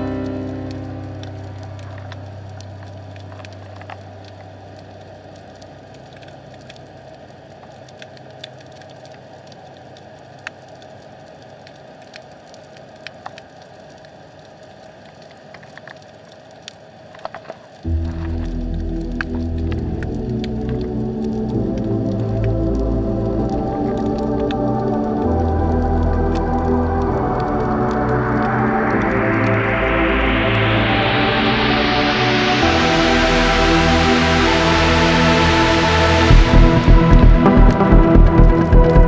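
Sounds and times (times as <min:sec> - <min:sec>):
background music: 0:00.0 - 0:04.7, 0:17.9 - 0:39.0
sharp clicks and crackles: 0:00.0 - 0:29.6.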